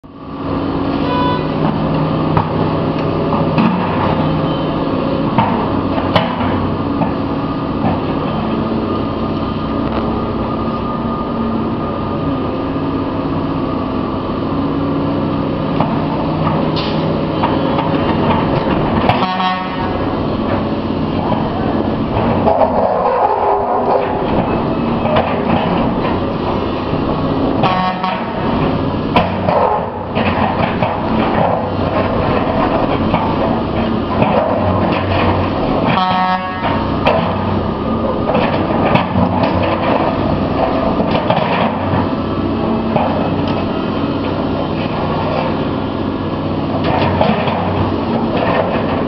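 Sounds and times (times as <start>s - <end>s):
excavator diesel engine running: 0.0s - 49.0s
street traffic: 0.0s - 49.0s
car horns honking: 1.0s - 1.6s, 19.1s - 20.0s, 27.6s - 28.4s, 35.9s - 36.9s.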